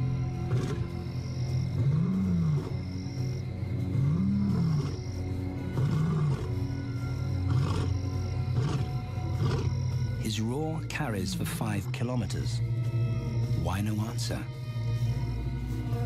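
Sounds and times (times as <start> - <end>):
droning music score: 0.0 - 16.0
lion roaring: 0.4 - 0.9, 1.7 - 2.9, 3.8 - 6.6, 7.4 - 9.8.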